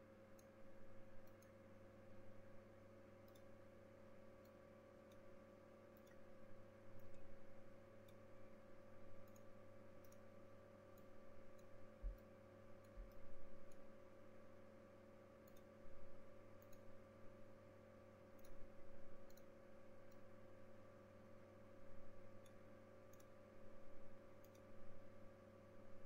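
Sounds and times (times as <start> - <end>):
low electrical hum: 0.0 - 26.0
faint light clicks: 5.9 - 6.3, 9.2 - 10.3, 15.4 - 15.7, 16.6 - 16.9, 18.4 - 20.3, 22.4 - 23.4, 24.4 - 24.8.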